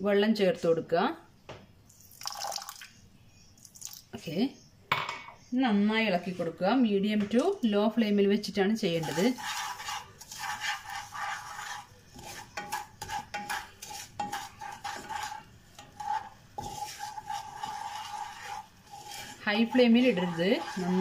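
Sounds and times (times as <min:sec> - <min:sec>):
wooden spatula scraping saucepan: 0:08.5 - 0:21.0.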